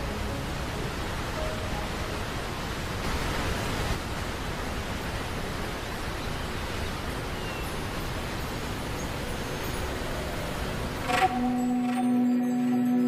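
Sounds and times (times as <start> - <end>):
waterfall and river rushing: 0.0 - 13.0.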